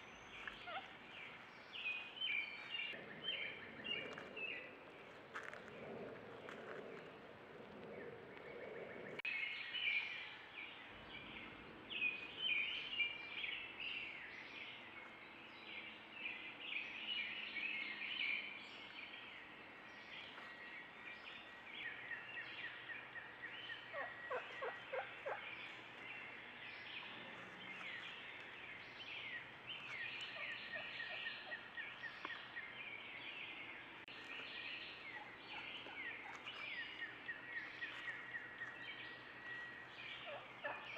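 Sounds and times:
turkeys chirping: 0:00.4 - 0:01.0, 0:23.7 - 0:25.9, 0:35.0 - 0:40.9.

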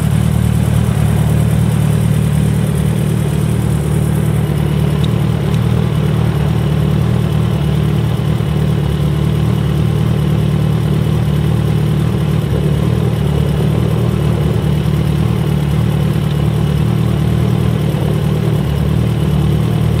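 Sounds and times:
motorcycle engine idling: 0:00.0 - 0:20.0.

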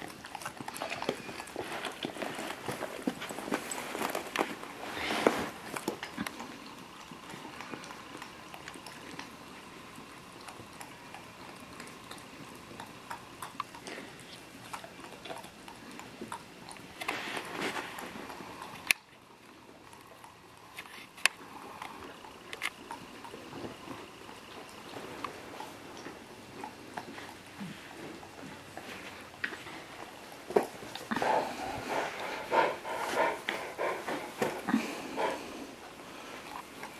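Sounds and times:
dogs licking ice cream: 0:00.0 - 0:04.8, 0:05.5 - 0:36.9
tongue and mouth clicks: 0:05.7 - 0:17.2.

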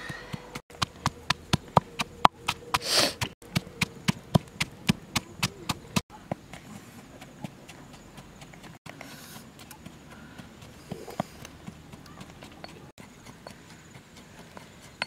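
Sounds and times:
pestle pounding in stone mortar: 0:00.0 - 0:06.6, 0:09.4 - 0:15.0.

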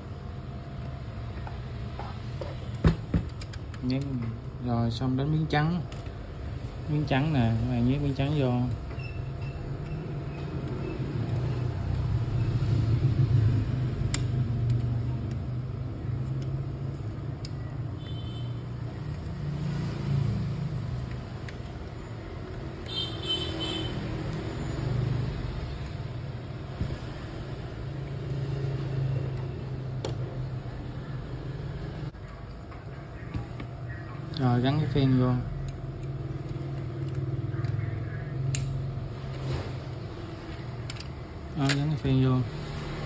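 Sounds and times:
plastic and metal parts clicking: 0:40.8 - 0:41.9.

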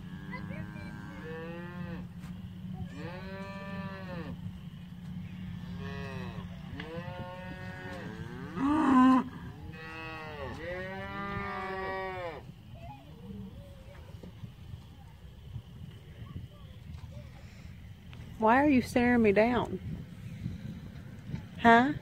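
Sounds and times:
cattle mooing: 0:00.0 - 0:02.1, 0:02.8 - 0:04.4, 0:05.4 - 0:12.4.

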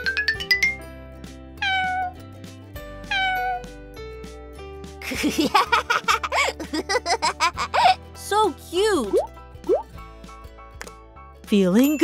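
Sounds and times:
light background music: 0:00.0 - 0:12.0
kitten meowing: 0:01.6 - 0:02.2, 0:03.1 - 0:03.6.

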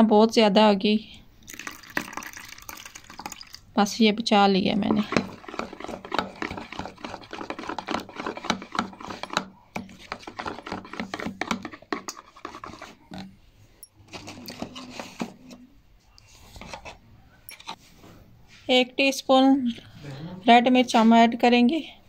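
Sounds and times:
spoon scraping plastic bowl: 0:04.8 - 0:13.3, 0:14.0 - 0:15.6.

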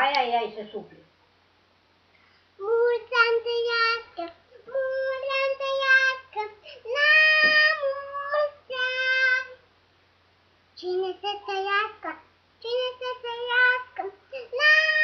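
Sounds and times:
girl singing: 0:02.6 - 0:09.7, 0:10.8 - 0:15.0.

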